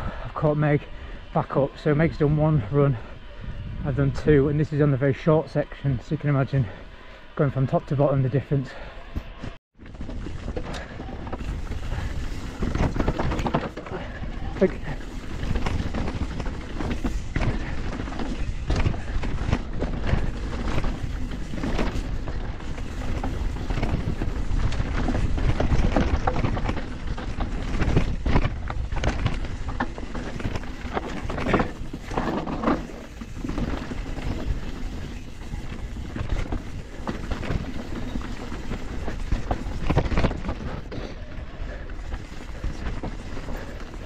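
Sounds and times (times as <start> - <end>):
bike tyres rolling over dirt: 0.0 - 44.0
wind rumble on microphone: 2.0 - 4.8, 9.8 - 44.0
bike rattling and knocking: 9.4 - 44.0.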